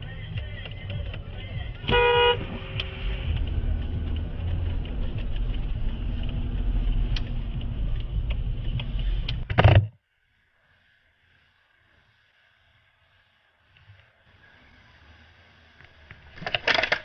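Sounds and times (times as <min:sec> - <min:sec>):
car engine and road rumble: 0:00.0 - 0:17.0
short horn blast: 0:01.8 - 0:02.8.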